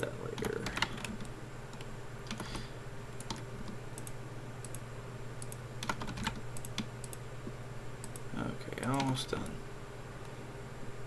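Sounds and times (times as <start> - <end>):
keyboard and mouse clicks: 0.3 - 4.8, 5.4 - 7.2, 8.0 - 8.2, 8.8 - 9.6.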